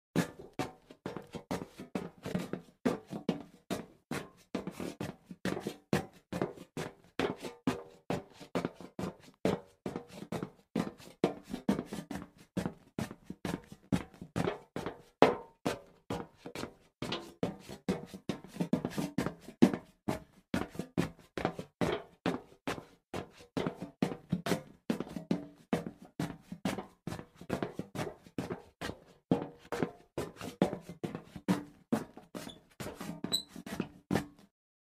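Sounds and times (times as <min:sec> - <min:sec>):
footsteps on hollow metal: 0:25.0 - 0:30.0.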